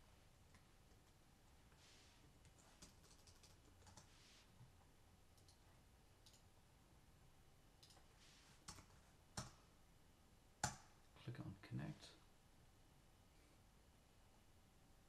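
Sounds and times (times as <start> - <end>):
computer mouse clicks: 2.4 - 4.2, 5.3 - 6.5, 7.8 - 9.6.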